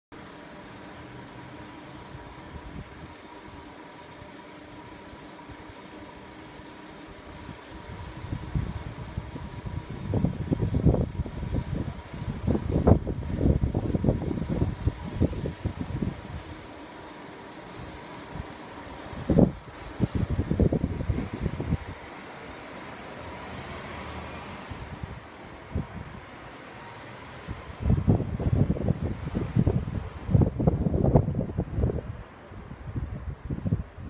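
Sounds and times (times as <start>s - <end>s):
vehicle hum: 0.2s - 34.0s
loud uneven low rumble: 6.5s - 22.1s, 27.3s - 34.0s.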